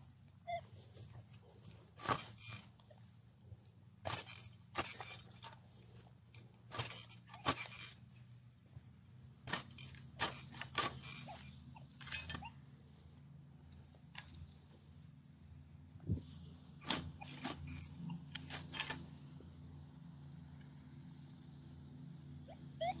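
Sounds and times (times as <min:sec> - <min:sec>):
hand digger cutting turf: 0:00.0 - 0:08.4, 0:09.1 - 0:12.5, 0:16.8 - 0:19.4
metal detector coil sweeping grass: 0:00.0 - 0:14.6, 0:16.2 - 0:23.0.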